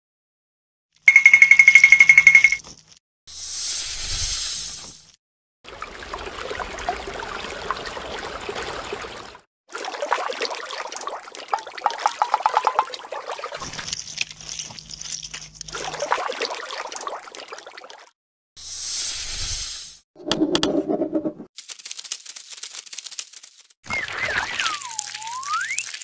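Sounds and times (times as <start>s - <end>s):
water trickling and splashing: 5.6s - 18.2s, 22.4s - 26.0s.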